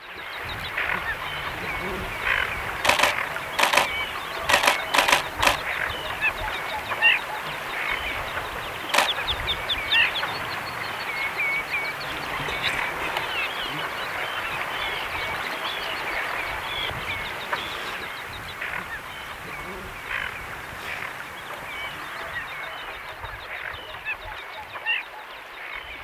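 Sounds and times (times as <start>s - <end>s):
waterbirds chirping: 0.0s - 26.0s
sharp clicks: 2.8s - 5.7s, 8.9s - 9.2s.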